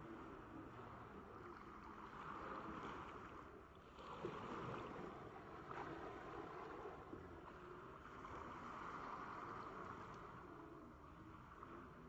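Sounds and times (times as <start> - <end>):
small waves lapping on sand: 1.7 - 12.0.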